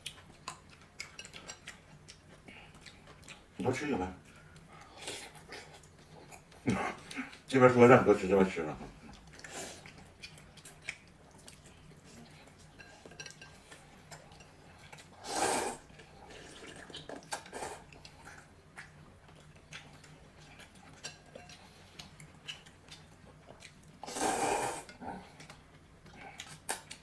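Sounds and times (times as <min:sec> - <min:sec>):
slurp: 0:15.2 - 0:17.9, 0:24.0 - 0:25.0.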